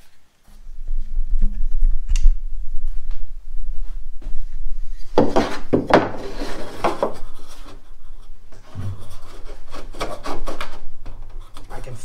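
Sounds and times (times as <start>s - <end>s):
plywood scraping against plywood: 5.2s - 7.9s, 8.5s - 11.7s.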